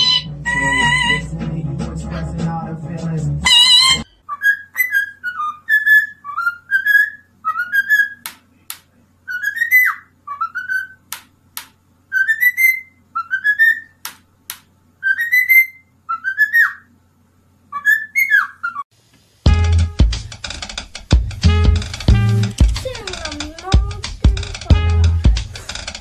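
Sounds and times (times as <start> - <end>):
cockatiel whistling: 0.0 - 1.3, 3.4 - 8.3, 9.3 - 11.0, 12.1 - 14.0, 15.0 - 16.9, 17.7 - 18.8
sharp clicks: 21.9 - 24.7.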